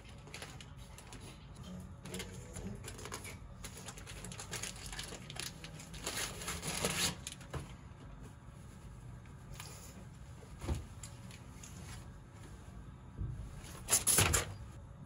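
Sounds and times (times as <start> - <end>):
plastic packaging crinkling: 2.8 - 7.5.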